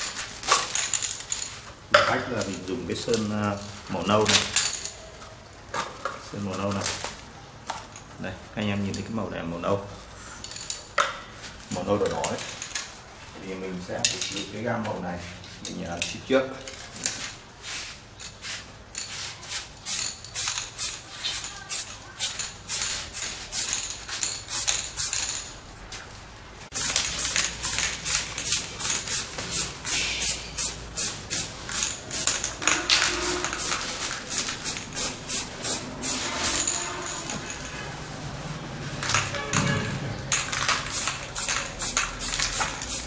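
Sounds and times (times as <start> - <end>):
spray paint can hissing: 18.4 - 25.5, 26.7 - 37.6, 40.5 - 43.0.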